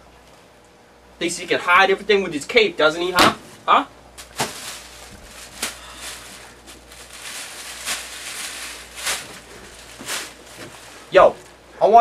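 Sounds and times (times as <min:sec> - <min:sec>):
paper and nylon coat rustling: 0:04.2 - 0:11.5.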